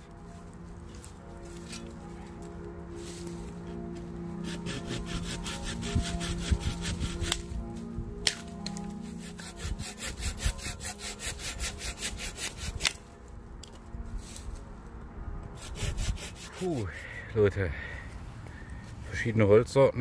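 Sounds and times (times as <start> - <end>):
hand saw cutting branch: 4.4 - 7.6, 8.2 - 13.1, 15.6 - 16.9.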